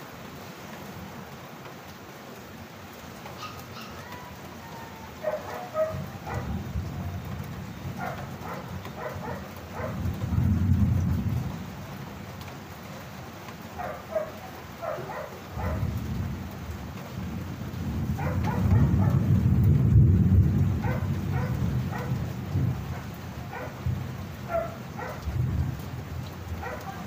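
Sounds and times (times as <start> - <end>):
steady rain: 0.0 - 27.0
dog barking: 3.4 - 6.8, 8.0 - 10.4, 13.7 - 16.0, 18.1 - 19.3, 20.8 - 25.4, 26.6 - 27.0
rolling thunder: 5.2 - 11.9, 14.8 - 27.0.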